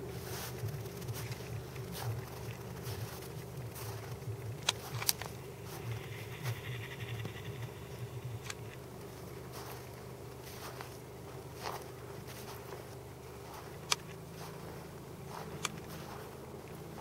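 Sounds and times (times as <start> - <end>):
steady low hum: 0.0 - 17.0
sharp clicks: 4.5 - 8.8
camera handling noise: 4.6 - 5.4.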